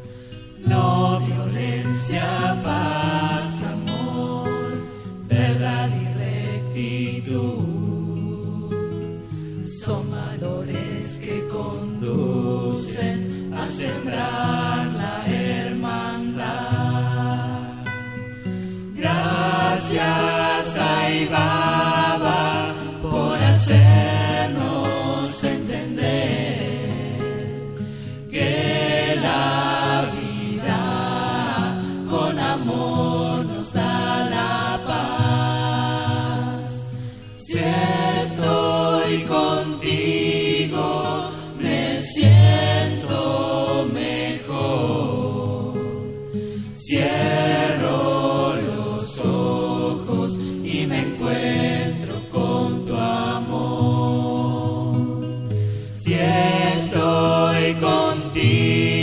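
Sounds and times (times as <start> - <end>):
group singing devotional song: 0.0 - 59.0.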